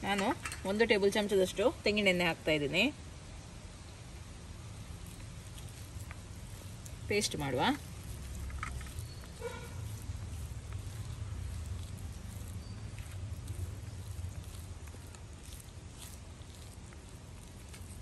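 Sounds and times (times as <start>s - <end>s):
low steady rumble: 0.0s - 18.0s
leaf crinkling: 3.7s - 18.0s
hand squishing wet paste: 4.3s - 18.0s.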